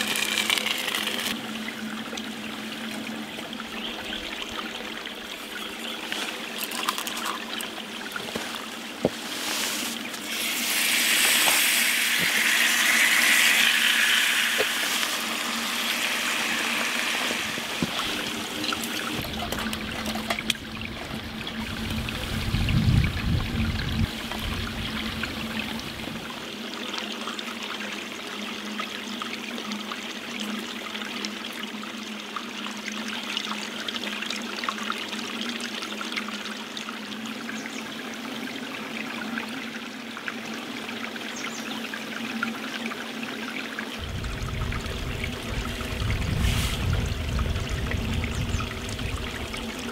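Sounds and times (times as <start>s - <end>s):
stream trickling and splashing: 0.0s - 49.9s
low rumble: 44.0s - 49.7s.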